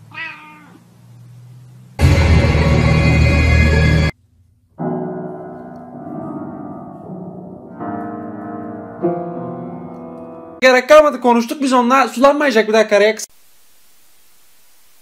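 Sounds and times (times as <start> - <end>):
loud dense sound: 2.0 - 4.2
piano note clusters: 4.8 - 10.6.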